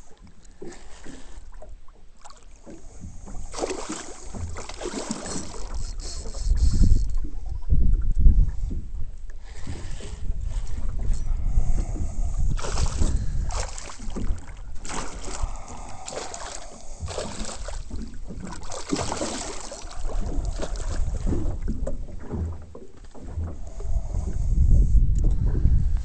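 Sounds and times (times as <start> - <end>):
water noise: 0.0 - 26.0
wind rumbling on microphone: 2.8 - 26.0
fish splashing at surface: 3.5 - 5.8, 12.6 - 21.3.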